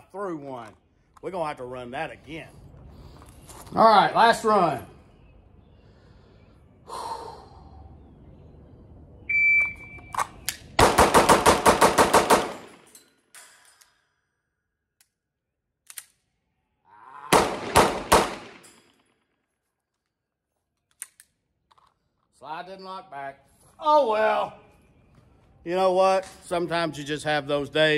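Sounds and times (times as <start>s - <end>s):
pistol shots: 10.6s - 12.9s, 17.3s - 18.8s.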